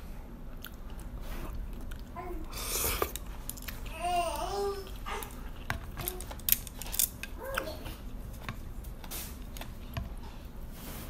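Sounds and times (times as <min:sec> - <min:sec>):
chewing: 0:00.5 - 0:03.9.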